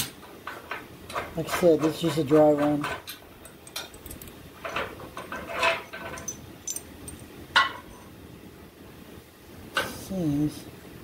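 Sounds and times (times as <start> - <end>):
metal bar clinking and clanking: 1.6 - 8.0.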